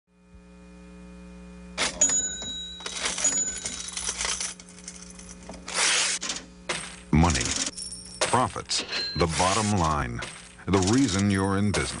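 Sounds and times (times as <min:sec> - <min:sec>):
low steady hum: 0:00.1 - 0:12.0
cash register clattering: 0:01.8 - 0:12.0
bell rings: 0:01.9 - 0:05.3, 0:07.7 - 0:10.0
coins jingling: 0:01.9 - 0:12.0.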